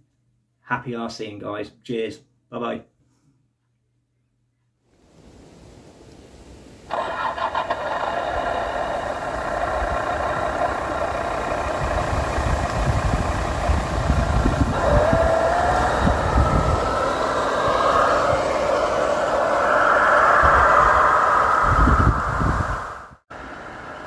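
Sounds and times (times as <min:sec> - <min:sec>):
simulated engine sound from speaker: 0:06.9 - 0:23.0.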